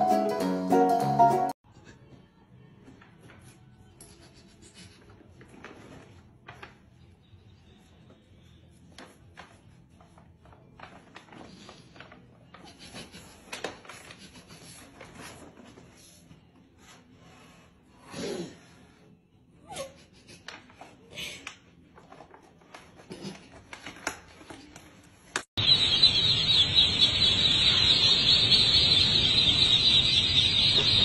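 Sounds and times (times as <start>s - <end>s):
bag rustling and scraping on tiles: 5.3s - 6.8s, 9.0s - 16.4s.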